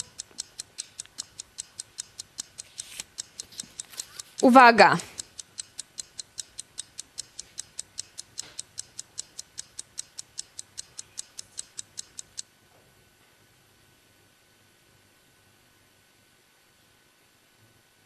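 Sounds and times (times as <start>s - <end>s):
clock ticking fast: 0.0s - 12.4s.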